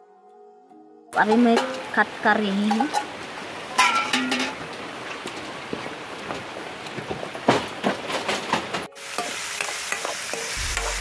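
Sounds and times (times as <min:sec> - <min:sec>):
onions sizzling in oil: 0:08.9 - 0:11.0.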